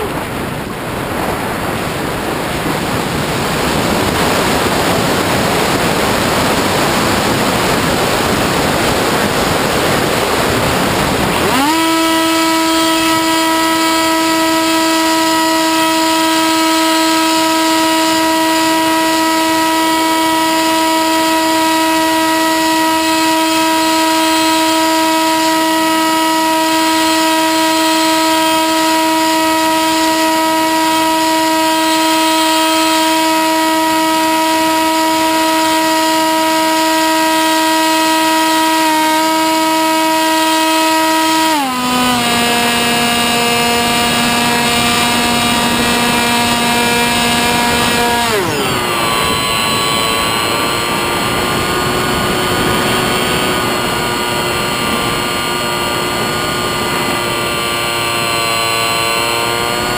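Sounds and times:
electric motor and propeller whining: 0.0 - 59.9.

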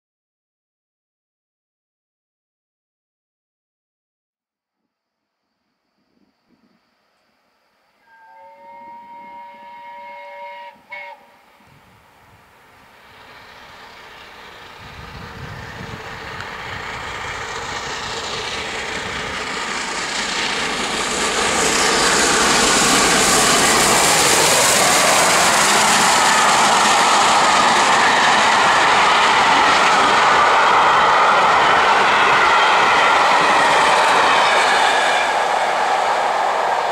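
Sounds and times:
train horn: 8.0 - 12.2
steam train passing: 8.0 - 36.9.

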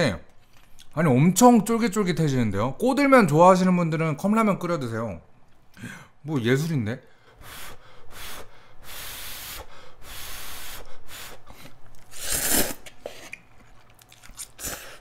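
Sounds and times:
slurping noodles: 7.5 - 13.7.

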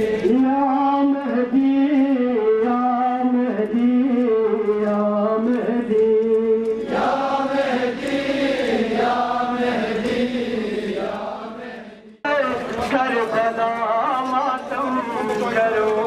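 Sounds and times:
man chanting through loudspeakers: 0.0 - 5.9, 12.2 - 16.0
crowd chanting: 6.8 - 13.7.

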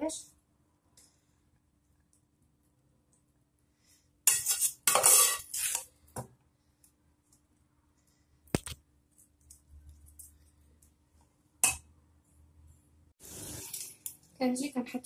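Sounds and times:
metal spoon scraping a pot: 4.2 - 5.9.

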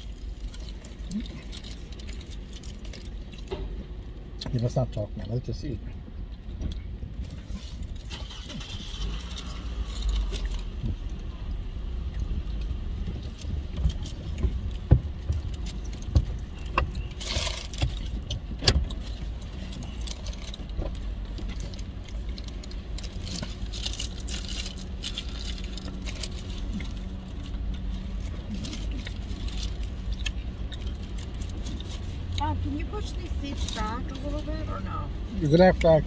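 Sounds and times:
low rumble inside a car: 0.0 - 36.0
paper wrapper crinkling: 18.9 - 32.3.

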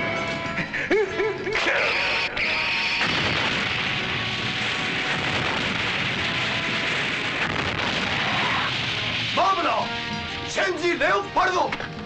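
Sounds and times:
explosion blast rush: 2.8 - 11.4.

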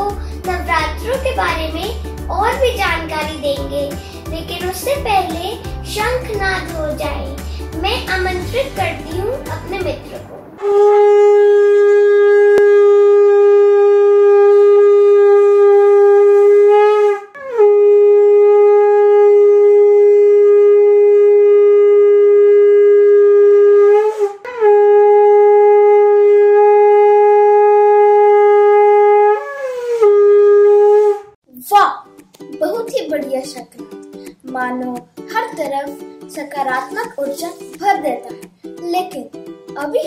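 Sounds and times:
short breaths: 4.0 - 4.3, 7.4 - 7.8
conch shell blasts: 10.2 - 31.3.

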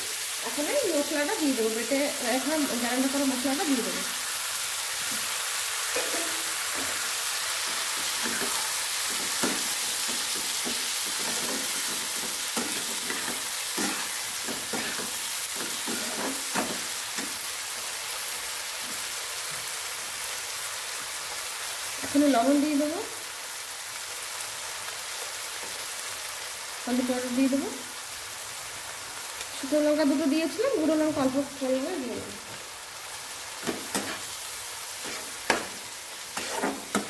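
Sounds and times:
mushrooms sizzling in a pan: 0.0 - 37.0
metal spatula scraping a pan: 5.8 - 17.4, 33.1 - 34.4, 35.0 - 37.0.

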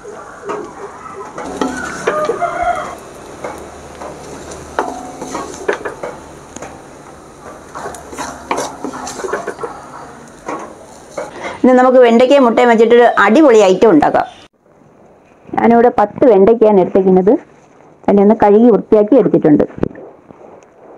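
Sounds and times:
food sizzling: 0.4 - 14.4
spoon scraping metal pan: 1.4 - 11.8.

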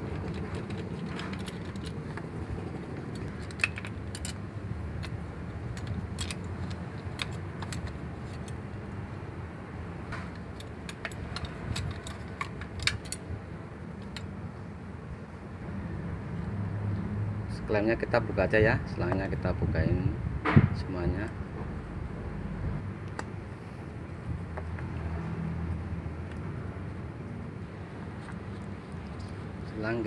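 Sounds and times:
sharp metallic clicks and clinks: 3.1 - 4.4, 10.2 - 13.2.

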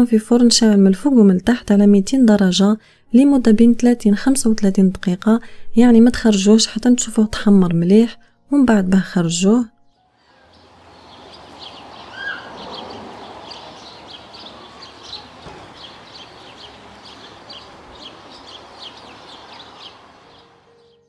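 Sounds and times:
soft outdoor background hiss: 0.0 - 21.0
birds chirping: 9.9 - 21.0.

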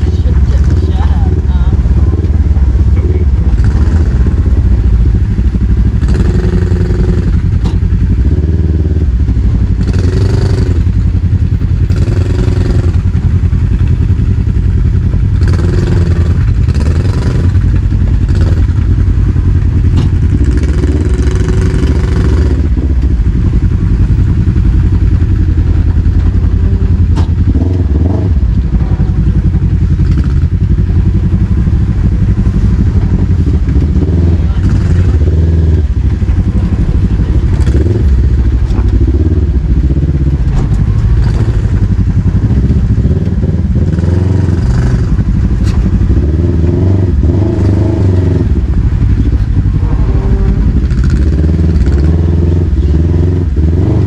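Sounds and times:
engine running with throttle bursts: 0.0 - 54.0.

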